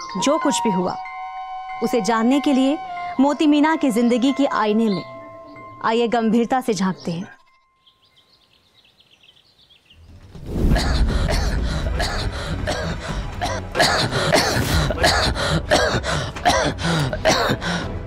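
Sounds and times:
background music: 0.0s - 18.0s
man coughing and gasping: 10.7s - 17.8s.

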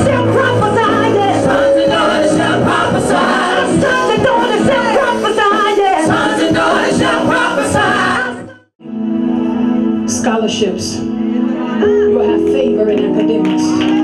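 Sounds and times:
accompaniment chords and beat: 0.0s - 8.4s
congregation singing: 0.2s - 8.6s.

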